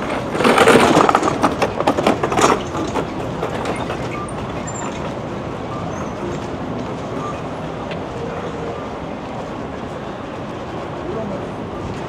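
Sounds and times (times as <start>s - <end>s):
clattering and knocks: 0.0s - 5.3s
city background din: 0.0s - 12.0s.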